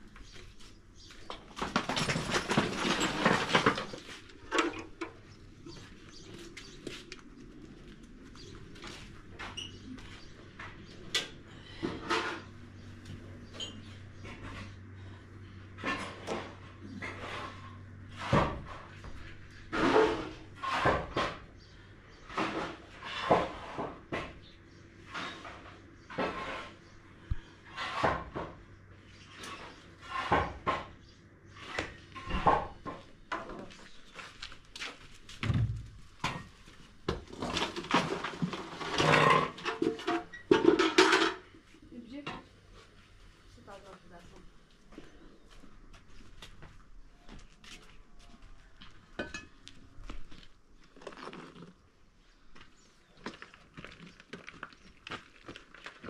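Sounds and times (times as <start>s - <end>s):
irregular knocks and clatter: 1.2s - 6.8s, 35.2s - 41.5s.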